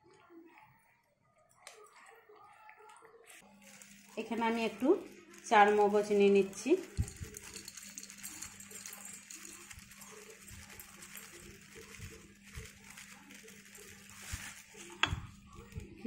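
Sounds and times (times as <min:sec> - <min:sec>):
seeds pattering on steel: 0:03.4 - 0:16.0.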